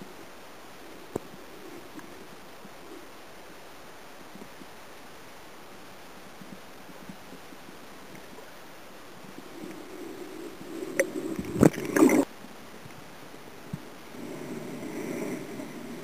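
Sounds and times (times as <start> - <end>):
muffled underwater water noise: 0.0 - 16.0
fish thrashing against camera: 9.6 - 12.3.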